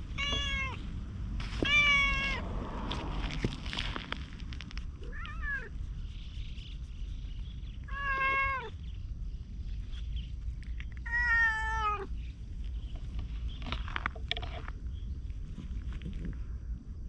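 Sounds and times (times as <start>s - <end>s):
cat meowing: 0.1s - 0.8s, 1.6s - 2.4s, 5.0s - 5.7s, 7.9s - 8.8s, 11.0s - 12.1s.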